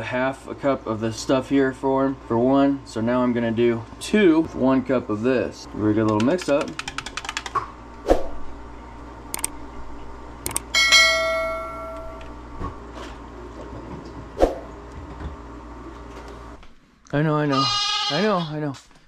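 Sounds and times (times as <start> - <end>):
ringing metallic clink: 10.8 - 12.3.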